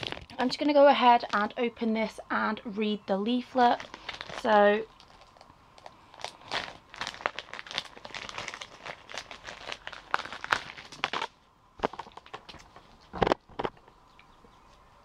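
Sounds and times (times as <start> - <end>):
packaging crinkling: 0.0 - 0.6, 3.6 - 13.7.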